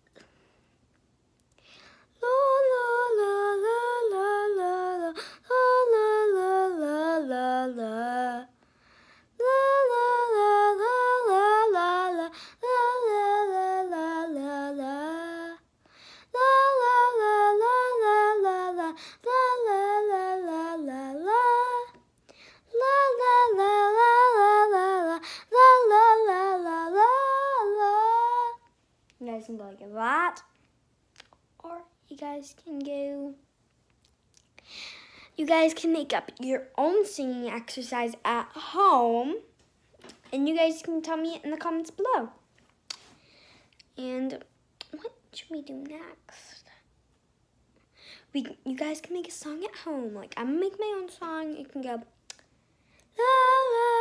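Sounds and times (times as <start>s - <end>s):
girl singing vocal exercise: 2.1s - 30.6s, 53.0s - 54.0s.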